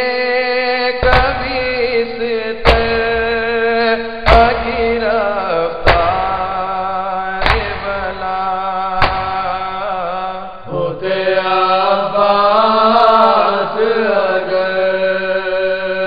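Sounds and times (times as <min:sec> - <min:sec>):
man chanting a lament: 0:00.0 - 0:16.0
chest-beating slaps: 0:01.0 - 0:03.6, 0:04.2 - 0:06.8, 0:07.4 - 0:09.9.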